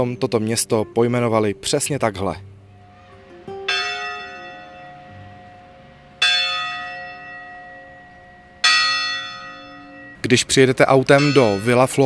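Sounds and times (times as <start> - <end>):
church bell tolling: 2.7 - 12.0.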